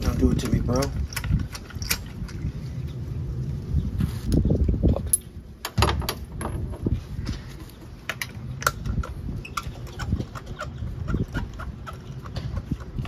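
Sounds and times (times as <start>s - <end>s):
metal tools clicking and clinking: 0.0s - 2.4s.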